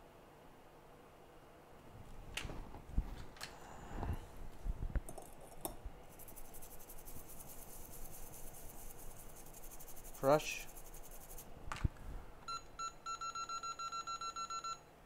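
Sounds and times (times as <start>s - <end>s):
fast high-pitched ticking: 6.2s - 11.4s.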